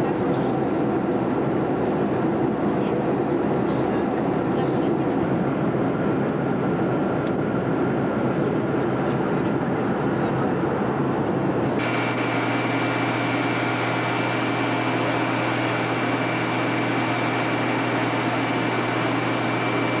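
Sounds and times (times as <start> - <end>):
airplane cabin roar: 0.0 - 20.0
high jet whine: 11.0 - 20.0.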